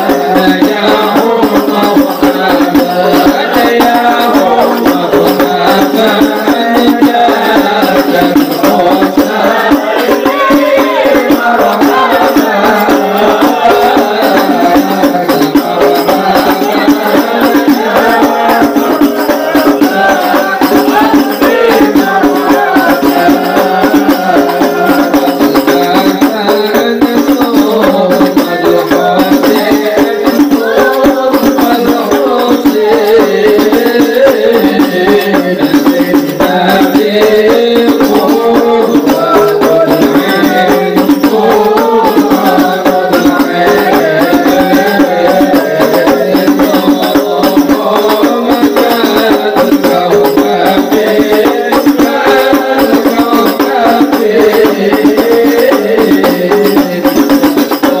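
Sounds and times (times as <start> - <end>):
frame drums beating: 0.0 - 58.0
group of voices chanting: 7.0 - 25.2, 38.2 - 46.8.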